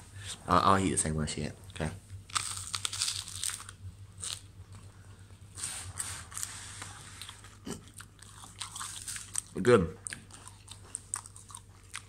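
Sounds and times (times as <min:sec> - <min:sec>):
person chewing crisp food: 0:02.3 - 0:04.9, 0:05.6 - 0:12.0.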